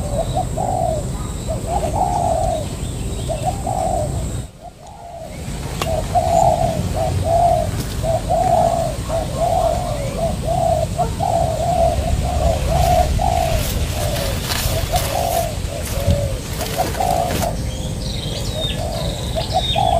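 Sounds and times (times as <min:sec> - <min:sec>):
dove cooing: 0:00.0 - 0:19.9
low rumble: 0:09.9 - 0:18.9.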